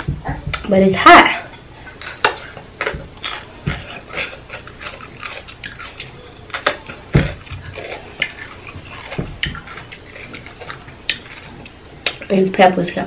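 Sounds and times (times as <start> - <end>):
close chewing: 1.5 - 12.4.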